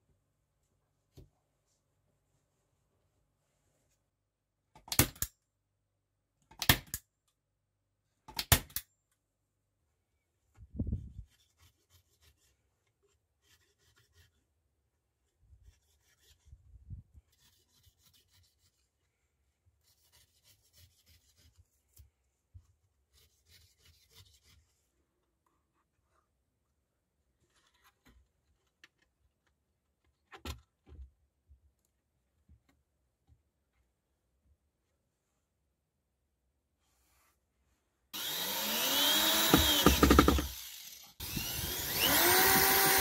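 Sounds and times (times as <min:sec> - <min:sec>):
hands and knife scraping carpet: 0:10.9 - 0:14.6, 0:15.5 - 0:26.4.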